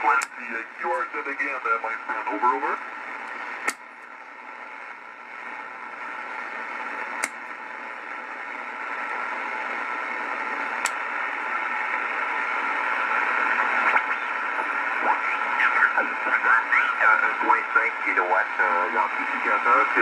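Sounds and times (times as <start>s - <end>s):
radio static hissing: 0.0s - 20.0s
sharp clicks: 3.2s - 3.8s.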